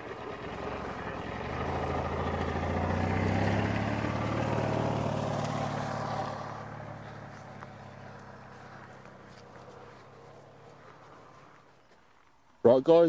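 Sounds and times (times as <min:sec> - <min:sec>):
vehicle engine running: 0:00.0 - 0:12.1.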